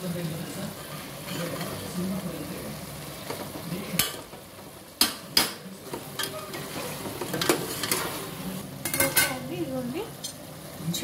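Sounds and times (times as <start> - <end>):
spoon clanking in metal pot: 8.8 - 9.4.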